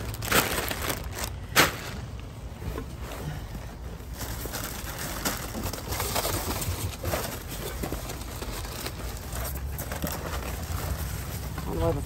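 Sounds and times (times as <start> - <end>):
plastic bags rustling and crinkling: 0.0 - 12.0.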